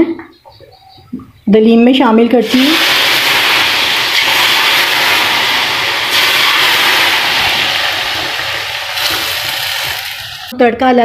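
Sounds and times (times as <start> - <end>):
hot ghee sizzling: 2.4 - 10.5.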